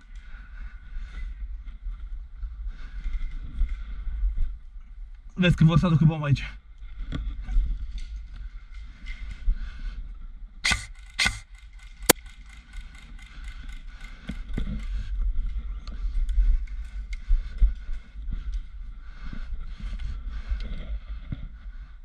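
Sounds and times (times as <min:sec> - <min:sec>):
wind rumble on microphone: 0:00.0 - 0:10.7, 0:13.7 - 0:22.0
short crack: 0:10.6 - 0:11.5.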